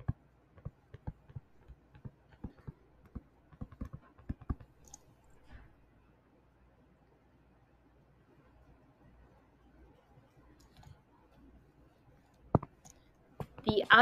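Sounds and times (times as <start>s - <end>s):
stylus clicking on tablet screen: 0.0s - 5.6s, 9.9s - 14.0s.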